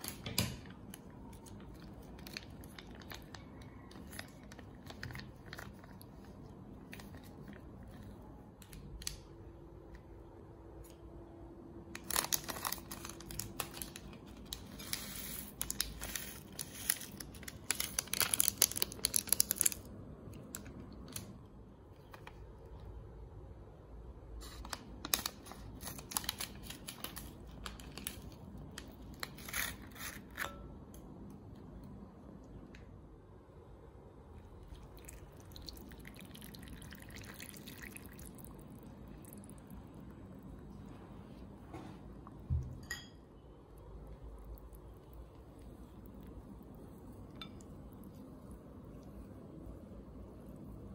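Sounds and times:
packet crinkling: 0.0 - 9.2, 12.0 - 21.3, 24.4 - 30.5
water pouring into a bowl: 34.7 - 39.7.

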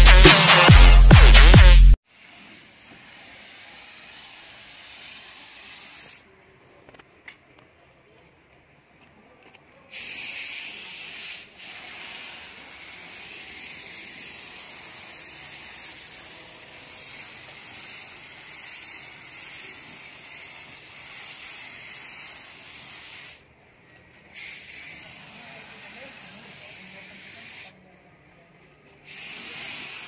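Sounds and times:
spray gun hissing: 2.0 - 6.3, 9.9 - 23.5, 24.3 - 27.8, 29.0 - 30.0.

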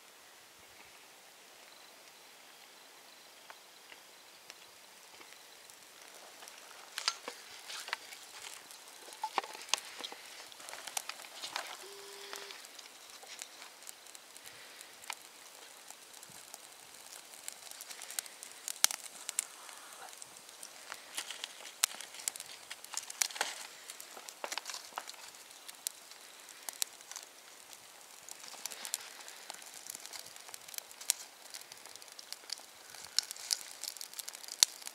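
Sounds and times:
fire crackling and popping: 3.4 - 34.9
short steady tone: 11.8 - 12.5.

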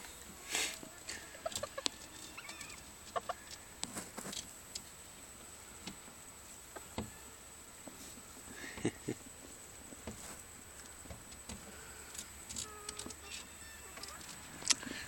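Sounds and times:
chickens clucking: 0.3 - 4.9, 10.6 - 15.0
chickens scratching in wood shavings: 0.4 - 4.5.

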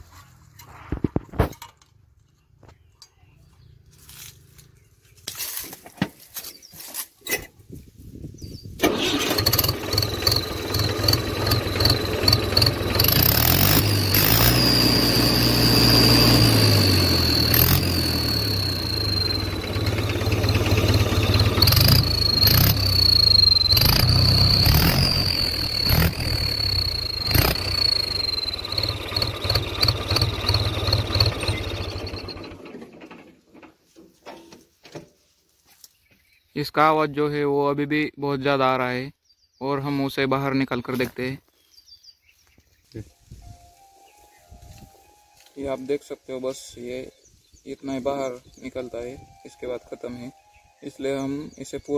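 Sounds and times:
exhaust whistle chirping: 8.8 - 32.6
tractor diesel engine: 8.8 - 33.8.

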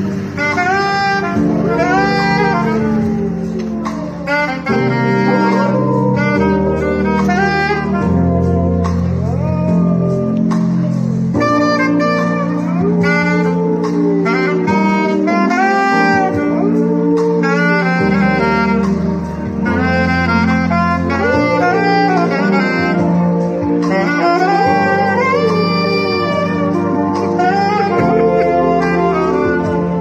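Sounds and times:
saxophone jazzy melody: 0.0 - 30.0
dog howling: 0.6 - 18.8, 21.0 - 30.0.

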